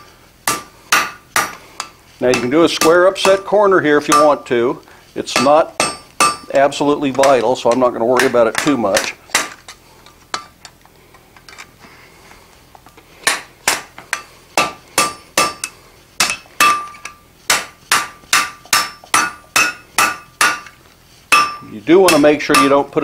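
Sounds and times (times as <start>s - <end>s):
hammer striking steel on anvil: 0.4s - 4.5s, 5.3s - 9.6s, 13.2s - 23.0s
anvil ringing: 0.5s - 4.5s, 5.3s - 6.6s, 13.3s - 20.7s, 21.3s - 22.9s.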